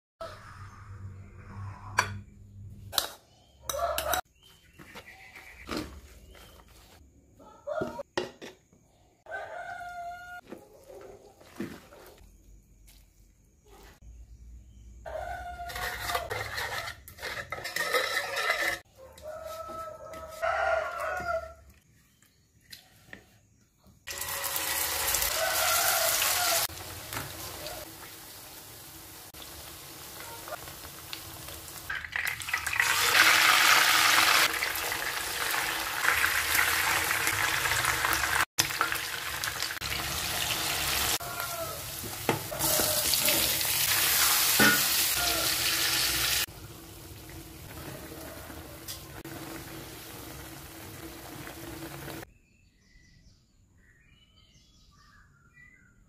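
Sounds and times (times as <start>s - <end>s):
rooster crowing: 7.4s - 8.0s, 9.2s - 10.5s, 15.1s - 16.3s, 18.9s - 21.7s, 24.1s - 26.8s, 40.8s - 43.6s, 45.1s - 46.2s, 47.7s - 49.2s
spoon scraping ceramic plate: 15.6s - 18.9s
food sizzling in hot oil: 24.1s - 52.3s.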